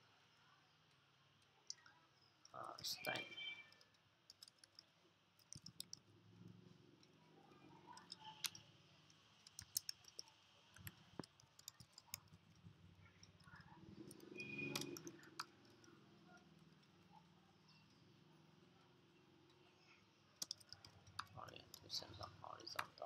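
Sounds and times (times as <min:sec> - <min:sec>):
keyboard typing: 0:02.6 - 0:08.6, 0:09.4 - 0:18.3, 0:20.4 - 0:23.0.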